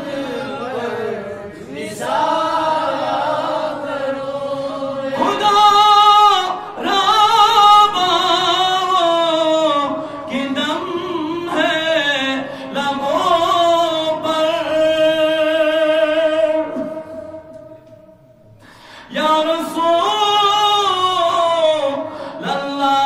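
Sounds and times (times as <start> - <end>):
man singing into microphone: 5.2 - 17.6, 19.1 - 23.0.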